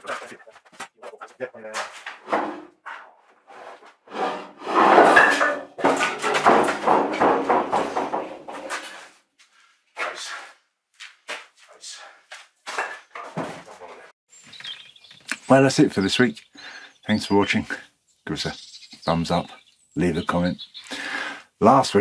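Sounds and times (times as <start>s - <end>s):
wooden beam scraping: 1.9s - 9.2s
short wooden knocks: 4.8s - 8.9s.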